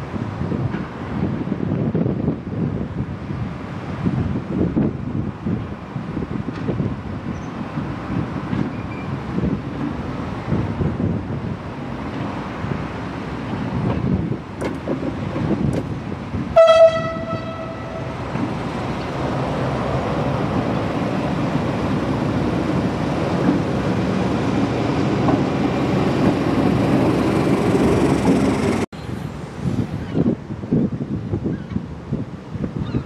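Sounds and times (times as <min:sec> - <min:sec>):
locomotive horn toot: 0:16.6 - 0:18.2.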